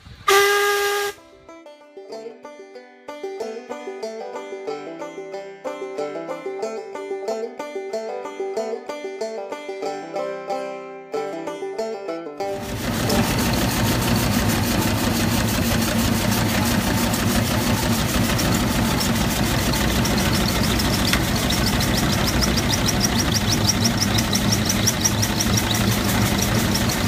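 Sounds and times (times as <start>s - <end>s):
steam engine mechanical beat: 12.5s - 27.0s
short high squeak: 18.5s - 27.0s.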